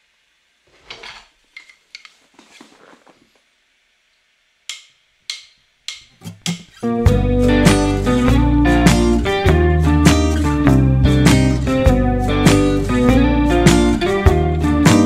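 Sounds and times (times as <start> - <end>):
acoustic guitar music: 6.1 - 15.0.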